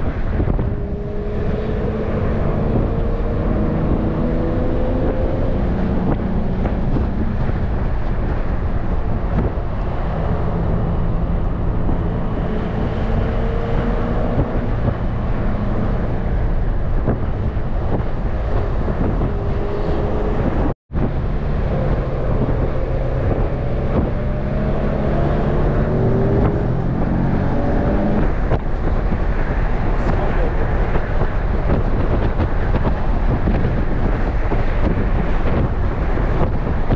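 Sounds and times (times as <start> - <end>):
car engine accelerating: 0.0 - 36.9
road noise: 0.0 - 36.9
wind noise: 0.0 - 36.9.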